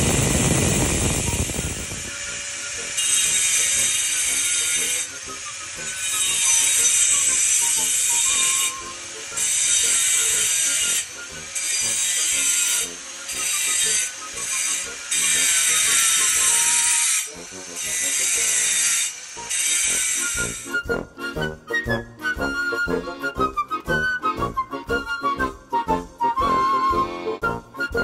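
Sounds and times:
angle grinder grinding stone: 0:00.0 - 0:20.9.

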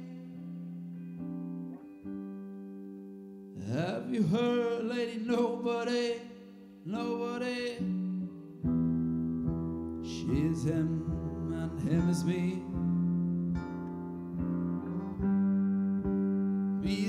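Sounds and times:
electric guitar: 0:00.0 - 0:17.0
electric bass: 0:08.0 - 0:17.0.

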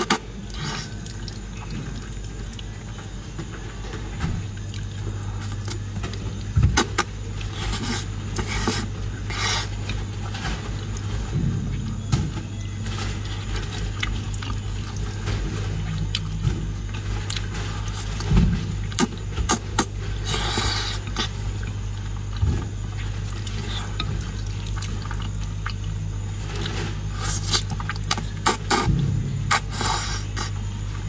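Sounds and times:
steady low hum: 0:00.0 - 0:31.0
wet chewing and smacking: 0:13.6 - 0:30.6.

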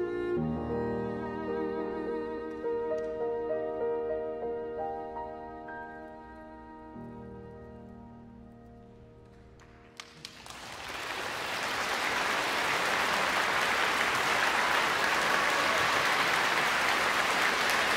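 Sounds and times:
audience applause: 0:09.9 - 0:17.9.

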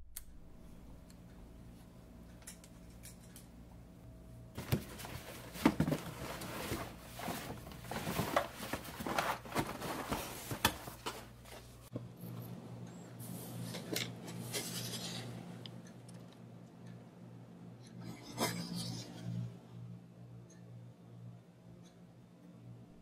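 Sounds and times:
faint steady hum: 0:00.0 - 0:23.0
rummaging in cardboard box: 0:04.6 - 0:11.8.

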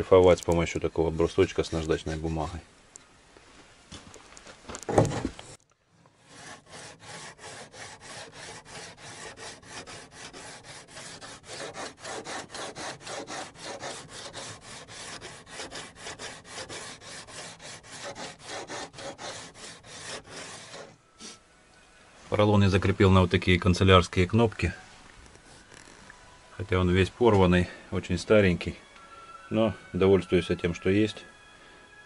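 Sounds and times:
sanding block rubbing on wood: 0:06.2 - 0:20.9.

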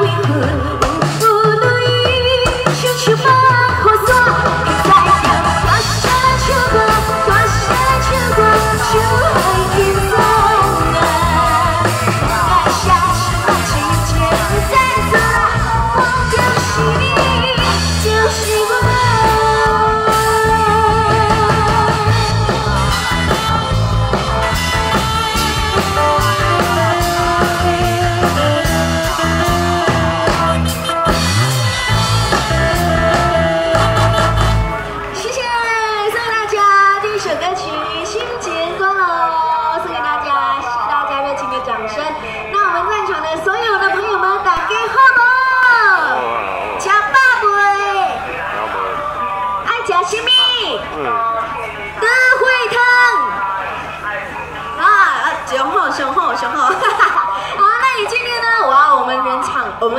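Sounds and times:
woman singing into a microphone: 0:00.0 - 0:23.8, 0:26.3 - 0:30.6
loud amplified backing music: 0:00.0 - 0:59.9.

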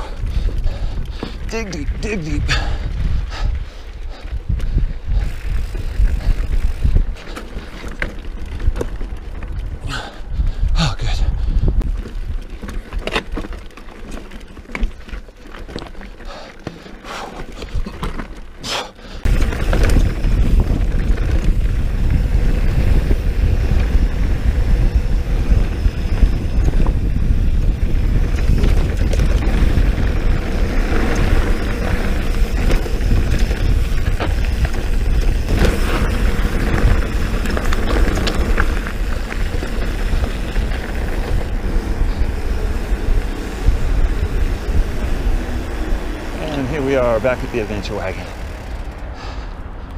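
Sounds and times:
bike rattling clicks: 0:00.0 - 0:10.8, 0:11.5 - 0:49.9
wind buffeting microphone: 0:00.0 - 0:13.2, 0:19.1 - 0:49.9
tyre noise on gravel: 0:11.8 - 0:49.1.

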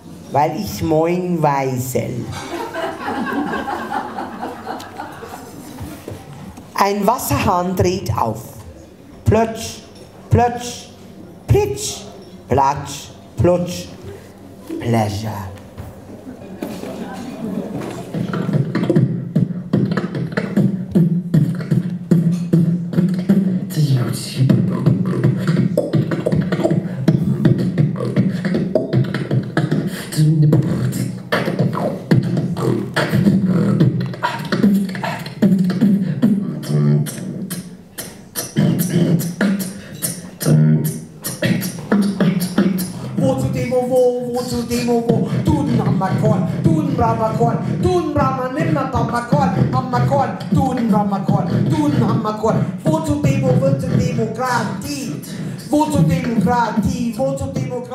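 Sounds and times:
person beatboxing: 0:17.8 - 0:57.9.

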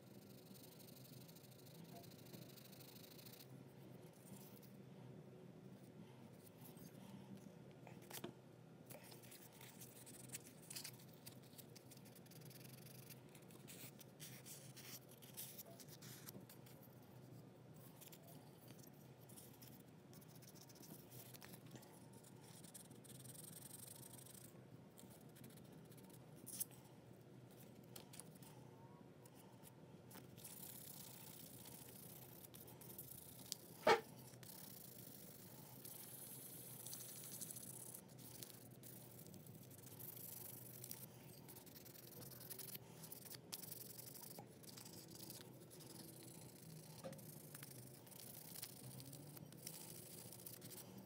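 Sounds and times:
faint scraping and rubbing: 0:27.4 - 0:51.0.

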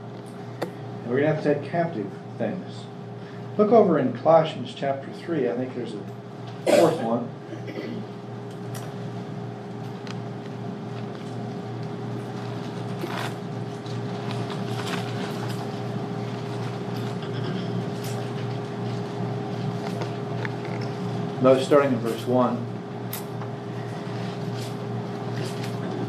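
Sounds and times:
low room hum: 0:00.0 - 0:26.0.

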